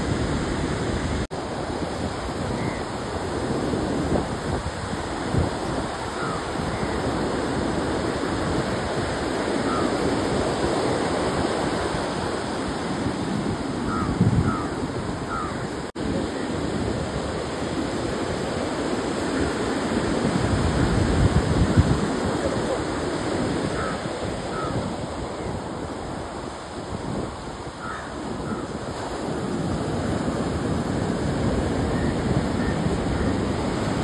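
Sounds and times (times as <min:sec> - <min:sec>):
surf breaking on a beach: 0:00.0 - 0:34.0
faint bird calls: 0:06.1 - 0:07.1, 0:09.6 - 0:10.0, 0:13.8 - 0:15.8, 0:23.7 - 0:24.8, 0:27.8 - 0:28.7.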